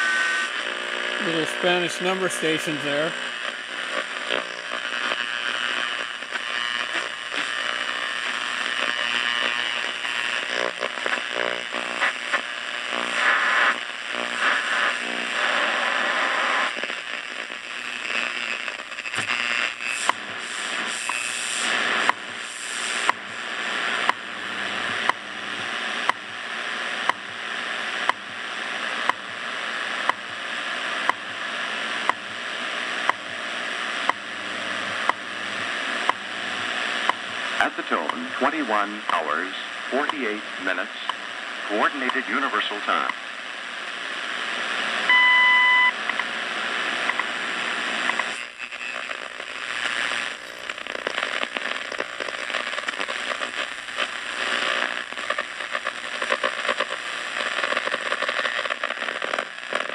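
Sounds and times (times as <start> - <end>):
radio static with whistling tones: 0.0 - 59.9.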